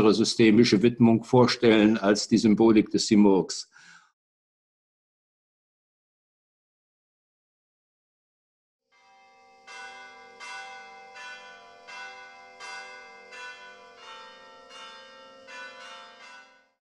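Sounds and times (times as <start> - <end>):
bells struck: 9.0 - 16.8
sustained ringing tone: 9.0 - 16.8.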